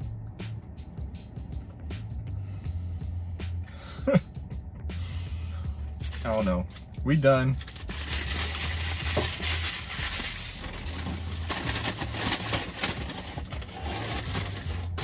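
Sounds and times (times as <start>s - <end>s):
paper wrapper crumpling: 6.0s - 6.5s, 7.6s - 15.0s.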